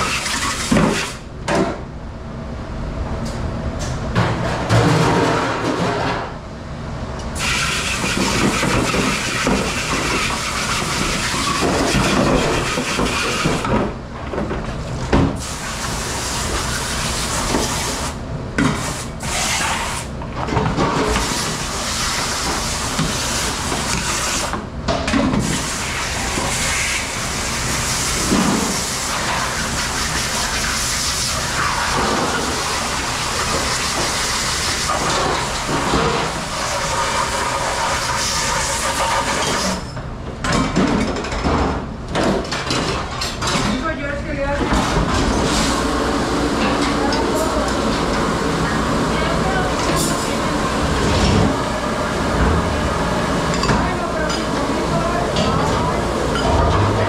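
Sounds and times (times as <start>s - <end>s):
machine hum: 45.8s - 57.0s.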